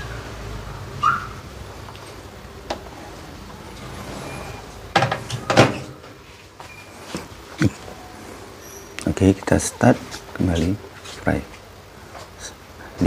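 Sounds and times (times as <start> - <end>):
grill plate and rack handled: 3.8 - 6.2
oven door shutting knocks: 4.9 - 6.0.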